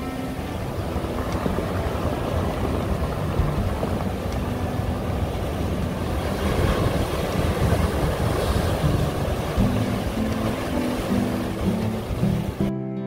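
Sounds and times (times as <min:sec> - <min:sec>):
surf breaking over rocks: 0:00.0 - 0:12.7
wind buffeting microphone: 0:00.0 - 0:12.7.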